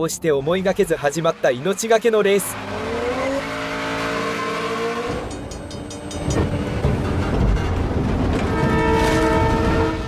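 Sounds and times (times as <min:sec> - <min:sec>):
train rumbling: 0:00.0 - 0:10.0
train horn: 0:02.6 - 0:05.5, 0:08.3 - 0:10.0.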